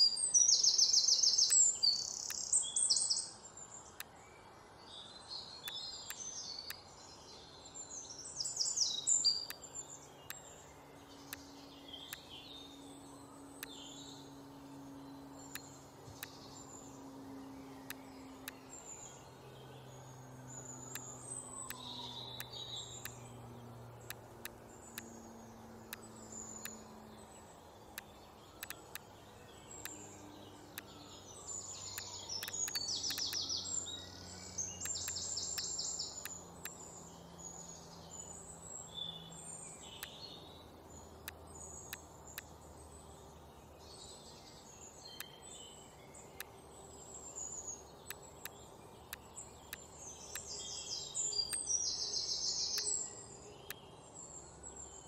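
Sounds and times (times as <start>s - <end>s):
birds chirping: 0.0s - 4.1s, 4.9s - 55.0s
soft low held tones: 9.3s - 51.7s
computer mouse clicks: 28.0s - 29.0s, 31.9s - 33.5s.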